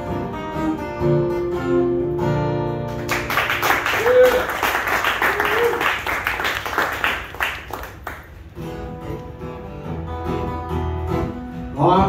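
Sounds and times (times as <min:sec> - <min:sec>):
acoustic guitar playing: 0:00.0 - 0:12.0
people clapping: 0:02.9 - 0:08.6.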